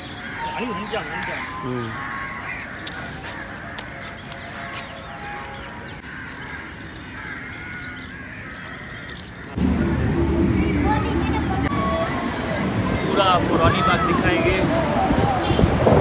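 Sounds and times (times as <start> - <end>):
crows cawing: 0.0 - 9.6
outdoor background noise: 0.0 - 16.0.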